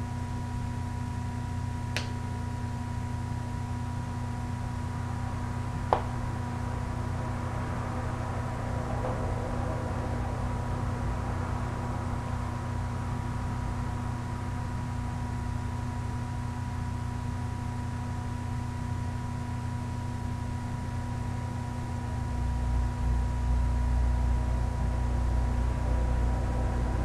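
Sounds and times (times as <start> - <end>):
steady hum: 0.0 - 27.0.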